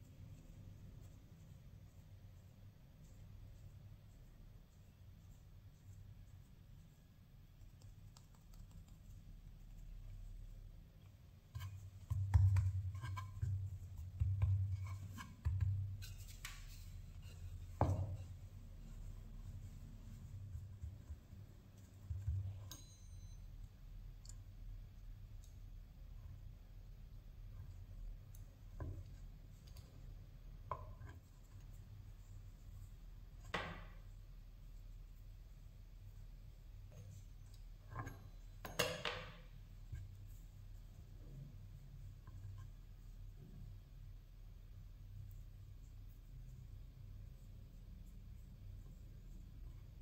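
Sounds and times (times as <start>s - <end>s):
low steady hum: 0.0s - 50.0s
hands patting dough: 11.1s - 22.8s.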